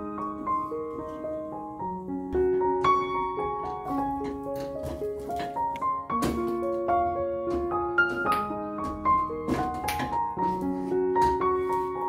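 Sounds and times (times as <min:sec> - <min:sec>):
slow piano music: 0:00.0 - 0:12.0.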